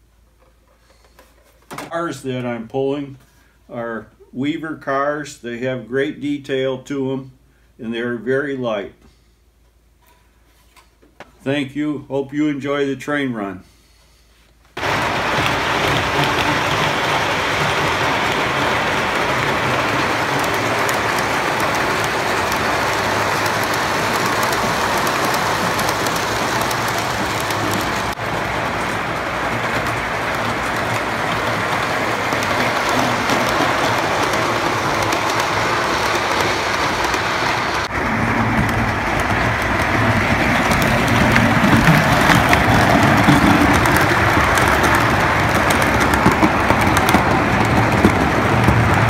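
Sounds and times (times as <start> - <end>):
model train rolling rumble: 14.8 - 49.0.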